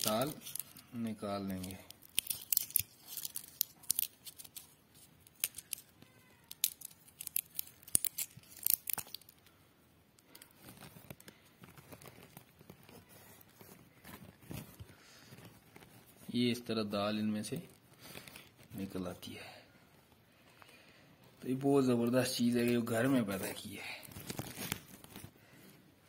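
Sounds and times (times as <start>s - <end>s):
dry bean pods crackling: 0.0s - 9.6s.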